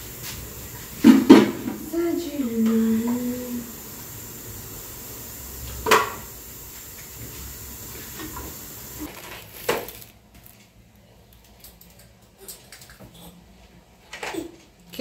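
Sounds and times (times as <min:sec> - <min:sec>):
stove hissing: 0:00.0 - 0:10.2.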